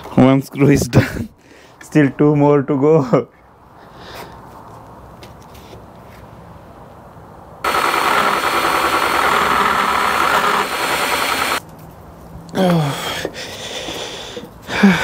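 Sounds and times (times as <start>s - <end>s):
power drill driving a screw: 7.7s - 11.6s.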